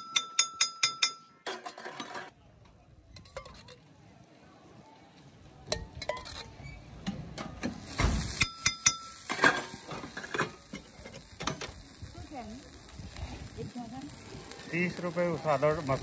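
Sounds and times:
spatula scraping on griddle: 1.5 - 2.3, 5.9 - 12.3.

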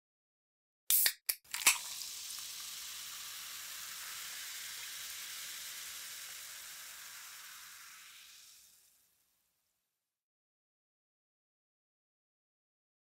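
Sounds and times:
oil popping: 0.9 - 8.9
food sizzling in hot oil: 0.9 - 9.8.

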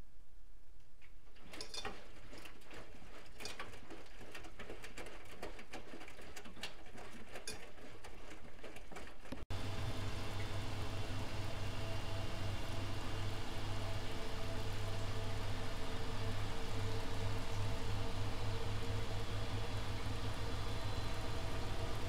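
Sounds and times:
laundry tumbling in washing machine drum: 1.2 - 9.7
washing machine motor hum: 1.4 - 22.0.

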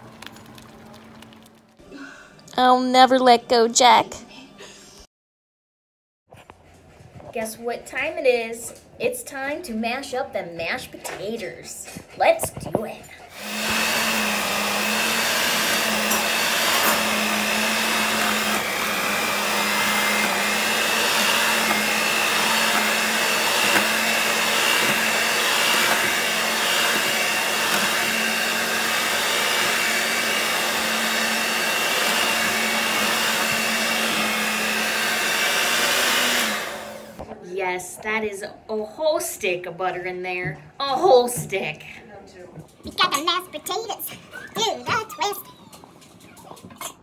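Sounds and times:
electric hand mixer running: 13.3 - 37.2.

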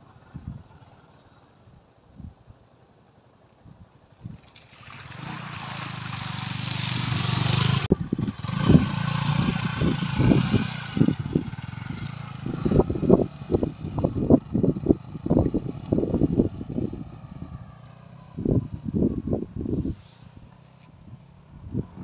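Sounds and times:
motorcycle engine running: 5.2 - 20.0.

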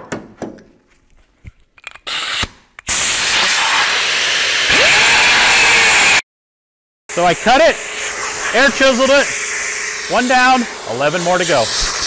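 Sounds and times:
air cutoff wheel cutting steel: 7.1 - 12.0.

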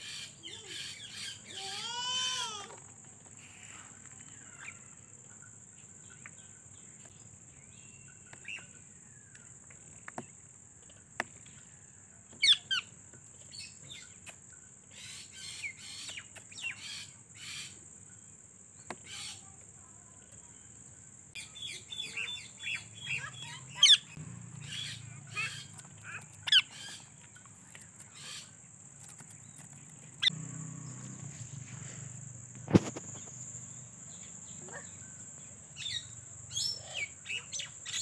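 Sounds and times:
parakeets chirping: 21.4 - 31.0
parakeet squawk: 22.6 - 27.0.

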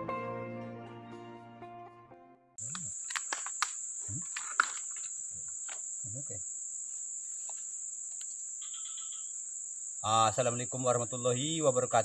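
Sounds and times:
sticks clicking and snapping: 2.6 - 5.1
insects droning: 2.6 - 12.0.

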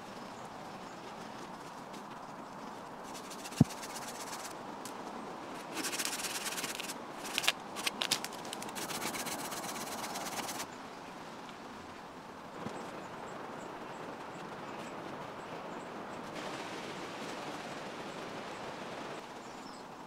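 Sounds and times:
branch cracking: 5.6 - 9.4
hand saw cutting a branch: 5.6 - 10.6.

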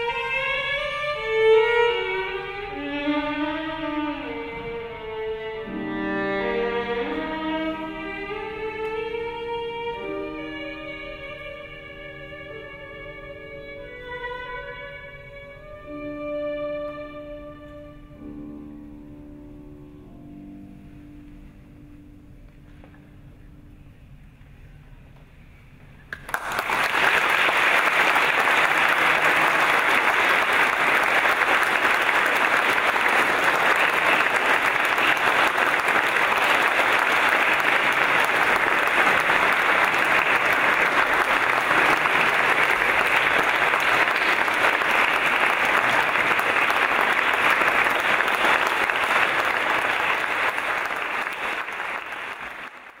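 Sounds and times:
audience applauding: 26.1 - 53.0.

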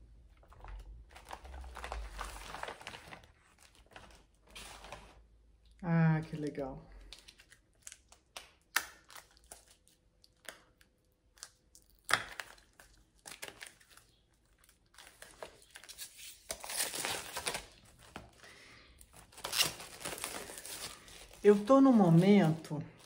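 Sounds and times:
plastic packaging crinkling: 0.3 - 5.4, 11.4 - 23.0.

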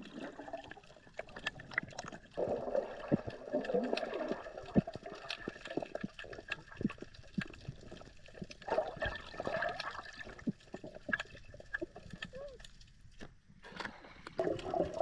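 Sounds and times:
bubbling: 0.0 - 15.0
muffled underwater movement: 0.0 - 15.0
small underwater clicks: 3.1 - 15.0.

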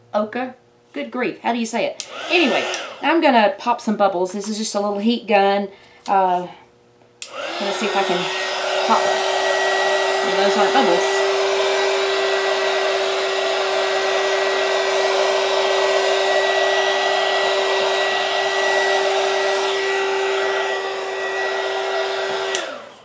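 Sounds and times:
heat gun blowing: 2.0 - 3.2, 7.2 - 23.0.

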